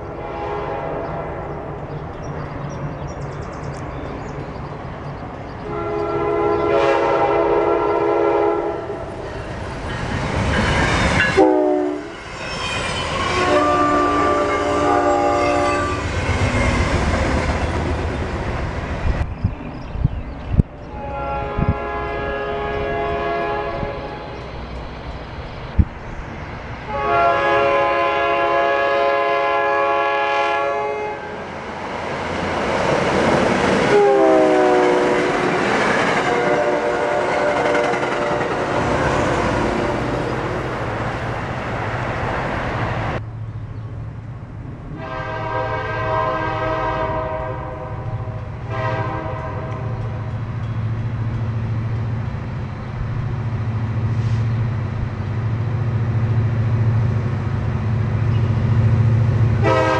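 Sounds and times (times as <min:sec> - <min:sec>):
train wheels rushing on rail: 0:00.0 - 0:59.9
train horn blast: 0:00.1 - 0:01.2, 0:05.6 - 0:09.1, 0:10.8 - 0:16.7, 0:20.9 - 0:24.4, 0:26.9 - 0:31.4, 0:33.8 - 0:40.2, 0:44.9 - 0:50.2, 0:59.6 - 0:59.9
locomotive horn blasts: 0:00.2 - 0:01.0, 0:05.6 - 0:09.0, 0:11.2 - 0:12.2, 0:13.1 - 0:16.2, 0:20.9 - 0:24.2, 0:26.9 - 0:31.4, 0:33.9 - 0:35.6, 0:36.2 - 0:38.0, 0:44.9 - 0:50.2, 0:59.6 - 0:59.9.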